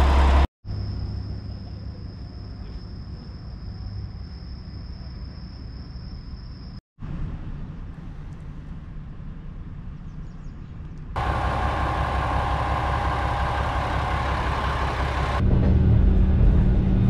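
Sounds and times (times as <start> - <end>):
diesel railcar engine idling: 0.0 - 0.5, 11.2 - 16.6.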